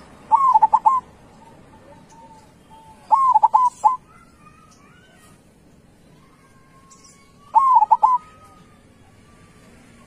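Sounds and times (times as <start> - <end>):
dove cooing: 0.1 - 4.0, 7.5 - 8.6
high bird chirps: 0.3 - 5.3, 6.0 - 8.7.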